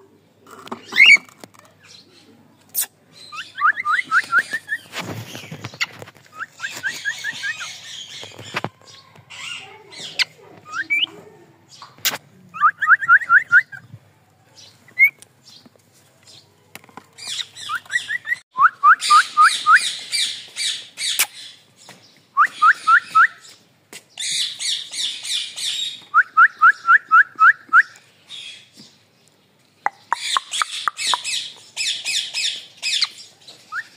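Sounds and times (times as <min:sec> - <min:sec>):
harsh scratchy bird chatter: 0:02.6 - 0:11.1, 0:19.8 - 0:21.6, 0:29.8 - 0:33.4.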